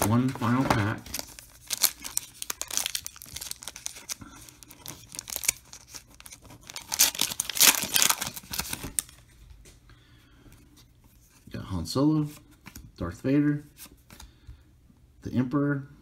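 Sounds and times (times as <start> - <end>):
foil wrapper crinkling and tearing: 0.0 - 9.2.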